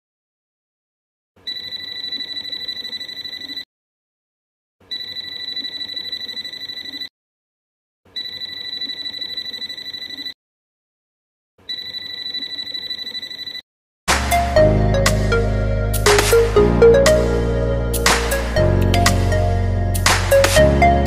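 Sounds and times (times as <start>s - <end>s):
multimeter buzzer beeping: 8.2s - 10.4s, 11.7s - 13.6s.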